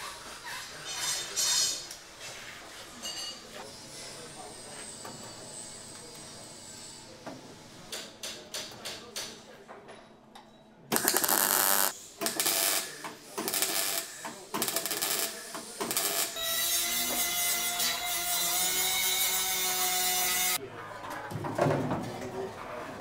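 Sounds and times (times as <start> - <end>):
welding crackling and sputtering: 10.9 - 16.4.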